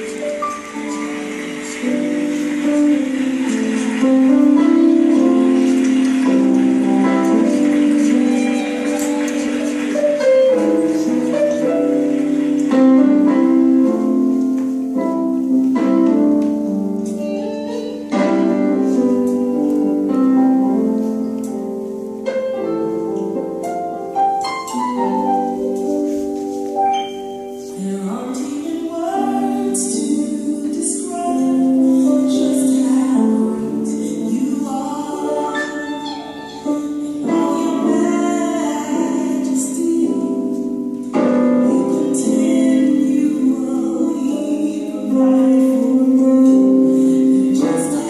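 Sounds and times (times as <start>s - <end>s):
person singing: 0.0s - 14.4s, 27.6s - 48.0s
recorded music: 0.0s - 48.0s.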